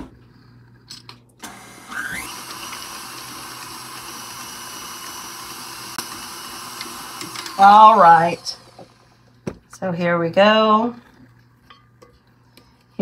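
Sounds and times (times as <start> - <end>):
stand mixer motor: 1.4 - 9.3.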